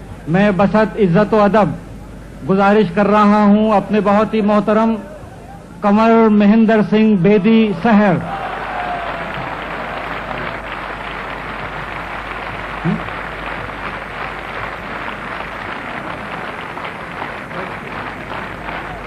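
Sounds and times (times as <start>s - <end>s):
murmur of voices: 7.5s - 19.0s
audience applauding: 8.3s - 19.0s.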